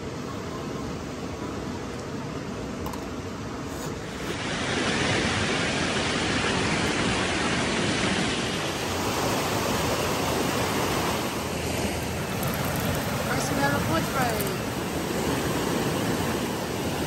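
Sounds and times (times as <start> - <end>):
river rushing over rocks: 4.3 - 17.0.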